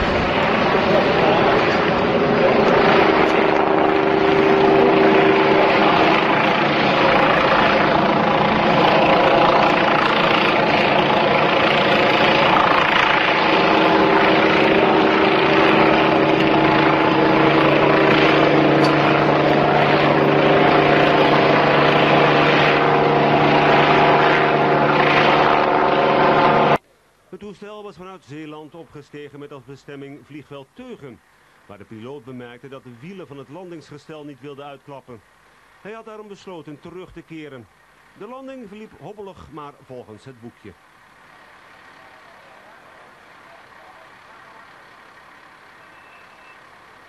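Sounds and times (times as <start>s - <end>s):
loud engine drone: 0.0s - 26.8s, 40.8s - 47.0s
rushing noise: 0.0s - 26.8s.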